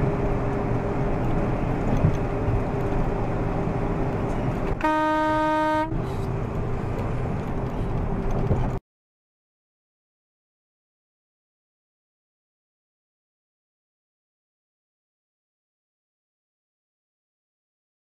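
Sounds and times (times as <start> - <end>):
truck cab road and engine noise: 0.0 - 8.8
truck horn blast: 4.8 - 6.1.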